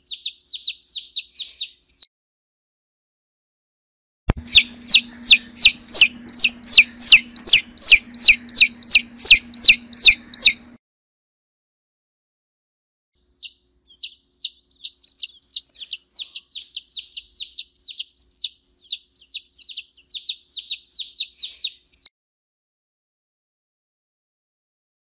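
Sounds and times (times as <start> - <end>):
baby chicks peeping: 0.0 - 2.1, 4.3 - 10.8, 13.2 - 22.1.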